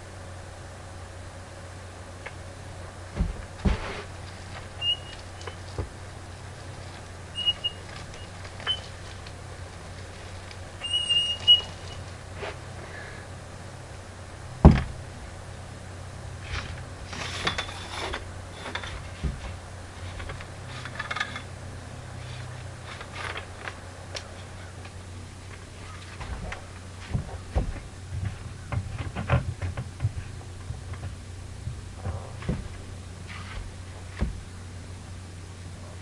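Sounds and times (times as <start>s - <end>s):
steady low hum: 0.0s - 36.0s
paint roller knocking and scraping wall: 3.1s - 4.8s, 16.4s - 21.5s, 26.0s - 34.4s.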